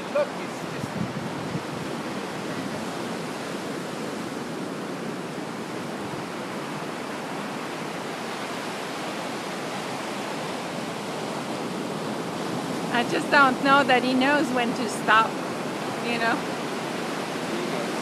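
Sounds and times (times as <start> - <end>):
ocean surf: 0.0 - 18.0.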